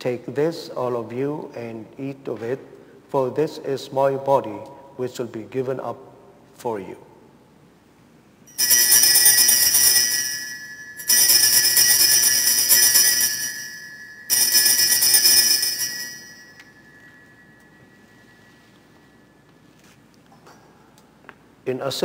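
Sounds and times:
hand bells ringing: 0:08.5 - 0:19.5.

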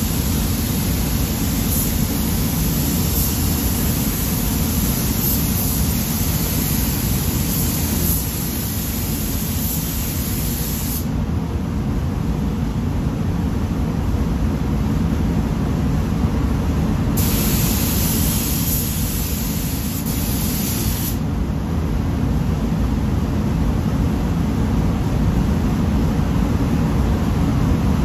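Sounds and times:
paint spray gun hissing: 0:00.0 - 0:11.1, 0:17.2 - 0:21.2
spray booth airflow rumble: 0:00.0 - 0:28.0.

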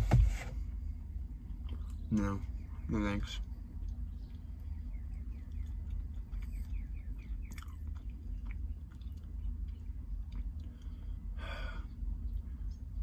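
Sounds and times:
steady low hum: 0:00.0 - 0:13.0
person chewing: 0:03.4 - 0:11.3.

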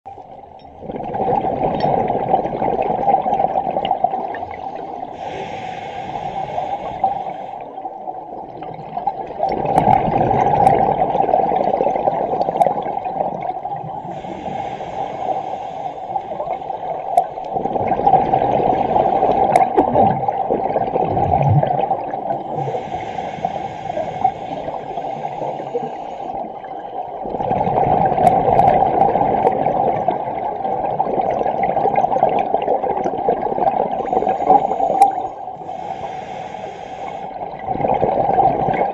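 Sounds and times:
exhaled bubbles rushing: 0:00.7 - 0:05.2, 0:08.3 - 0:14.2, 0:16.3 - 0:22.9, 0:26.4 - 0:35.6, 0:37.4 - 0:38.9
diver breathing through regulator: 0:04.7 - 0:07.9, 0:14.0 - 0:17.4, 0:22.3 - 0:26.6, 0:34.0 - 0:37.6.

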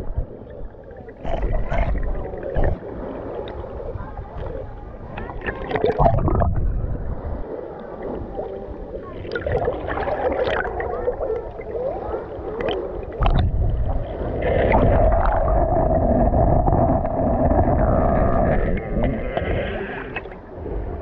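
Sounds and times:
underwater gurgling and bubbling: 0:00.0 - 0:21.0
low rumble: 0:06.0 - 0:07.5, 0:13.2 - 0:21.0.

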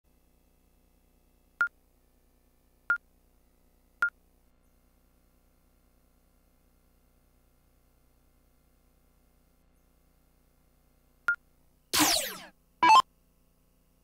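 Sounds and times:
faint low hum: 0:00.1 - 0:14.0
short electronic beeps: 0:12.0 - 0:13.0.

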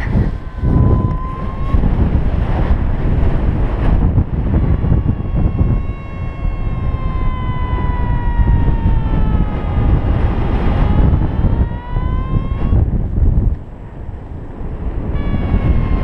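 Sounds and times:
wind rush on microphone: 0:00.0 - 0:16.0
buzzy variometer tone: 0:15.1 - 0:16.0.

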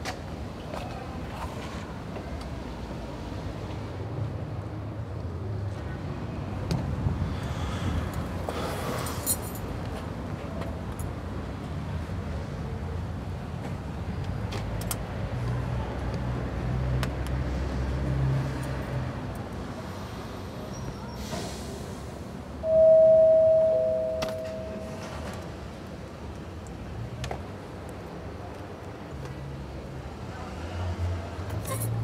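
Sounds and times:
street traffic rumbling: 0:00.0 - 0:32.0
two-note doorbell chime: 0:22.7 - 0:25.1.

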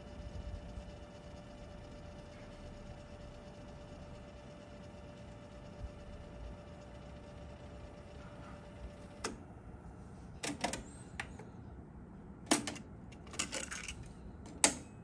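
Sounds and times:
plastic cassette rattle: 0:13.2 - 0:14.1.

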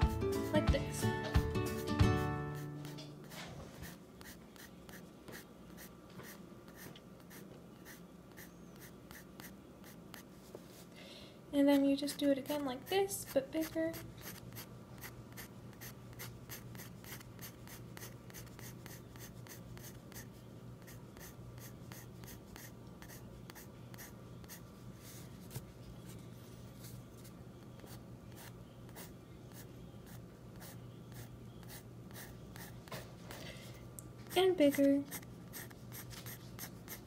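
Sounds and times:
pencil sketching on paper: 0:01.7 - 0:10.3, 0:13.2 - 0:25.3, 0:27.9 - 0:32.8, 0:34.3 - 0:37.0.

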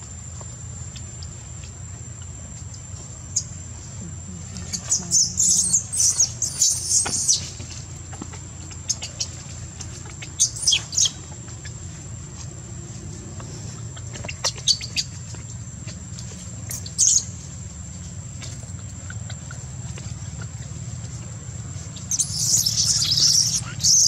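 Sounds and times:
baby monkey squealing: 0:22.1 - 0:24.0.

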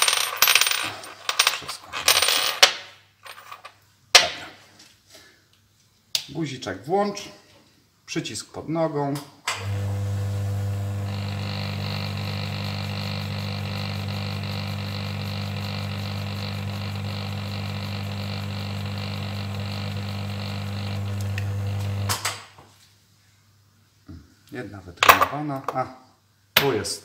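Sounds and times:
electric motor humming: 0:09.6 - 0:22.2
high whine: 0:09.6 - 0:22.2.

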